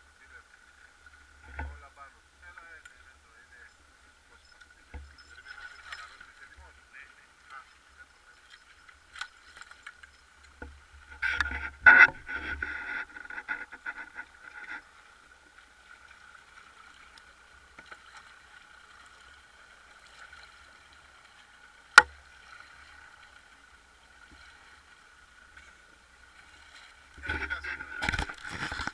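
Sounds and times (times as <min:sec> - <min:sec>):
faint hum: 0:00.0 - 0:28.9
knocking and scraping on boat: 0:01.4 - 0:01.8, 0:09.2 - 0:14.9, 0:27.2 - 0:28.9.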